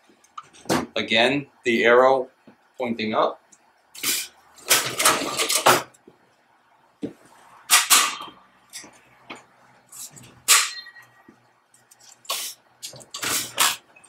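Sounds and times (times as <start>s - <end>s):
metal scrapes and clatters: 12.0s - 13.8s.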